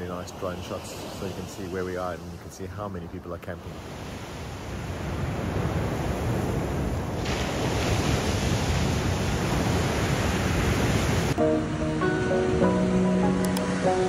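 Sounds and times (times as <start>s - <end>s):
ocean surf breaking: 0.0s - 14.0s
music with held notes: 11.4s - 14.0s.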